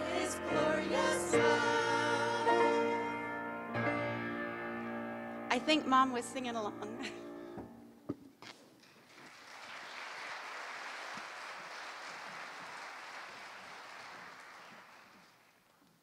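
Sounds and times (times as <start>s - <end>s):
congregation applauding: 9.0s - 15.8s.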